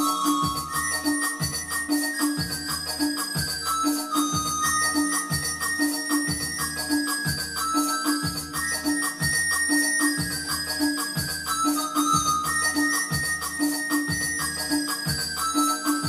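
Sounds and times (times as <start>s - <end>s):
bell-like keyboard melody: 0.0s - 16.0s
programmed drum and bass beat: 0.0s - 16.0s.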